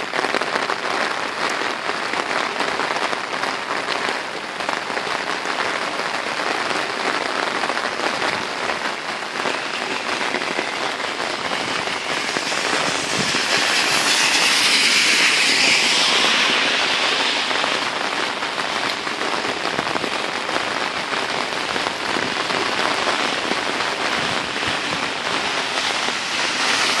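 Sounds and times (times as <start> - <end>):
heavy rain on wet paving: 0.0 - 27.0
loud hiss: 9.3 - 19.2, 23.4 - 27.0.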